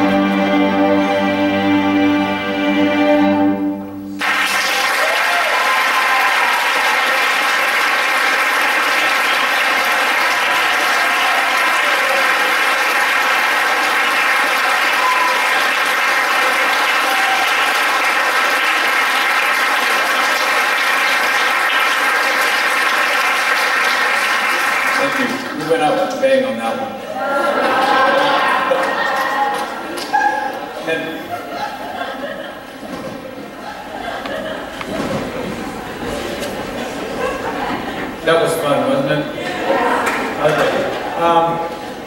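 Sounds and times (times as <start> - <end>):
string orchestra chord: 0.0 - 4.3
audience applauding: 4.1 - 32.8, 39.4 - 42.0
audience cheering: 4.2 - 25.4, 27.2 - 31.7.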